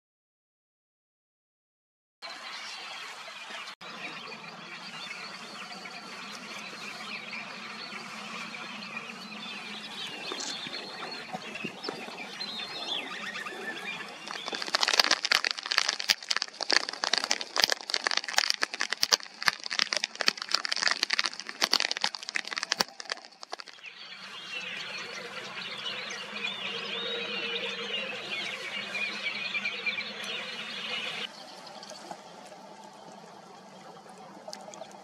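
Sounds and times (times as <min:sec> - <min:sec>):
birds calling: 0:04.0 - 0:32.0
dry crackling rattle of clicks: 0:14.2 - 0:23.8.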